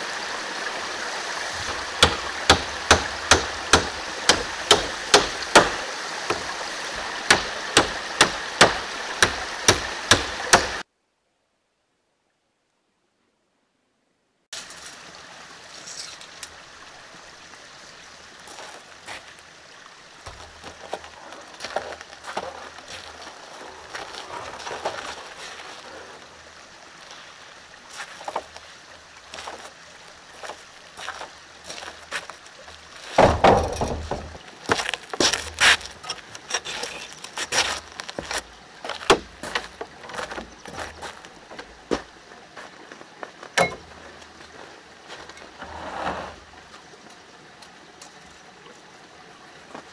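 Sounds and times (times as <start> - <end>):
stream rushing: 0.0 - 10.9, 14.5 - 49.9
footsteps on wooden planks: 20.3 - 26.0, 30.4 - 45.4.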